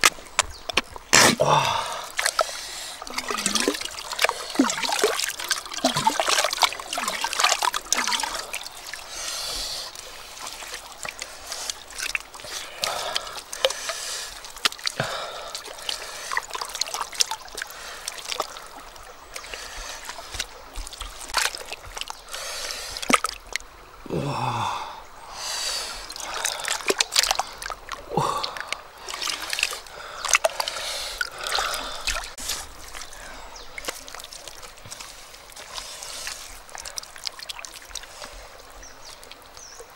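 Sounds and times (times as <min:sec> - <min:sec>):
water splashing and dripping: 0:00.0 - 0:39.9
hands slapping wet mud: 0:03.1 - 0:08.6, 0:23.0 - 0:23.6, 0:26.2 - 0:27.8, 0:28.4 - 0:33.1.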